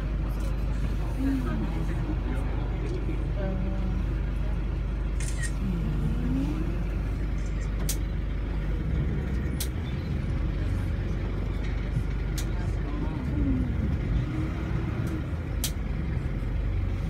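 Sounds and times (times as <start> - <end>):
boat engine humming: 0.0 - 17.0
faint voice: 12.4 - 15.4.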